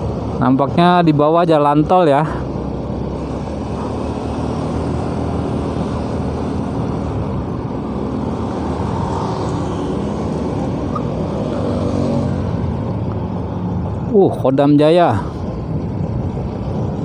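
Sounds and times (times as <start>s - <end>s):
motorcycle engine cruising: 0.0s - 17.0s
road noise: 0.0s - 17.0s
wind noise: 4.7s - 17.0s.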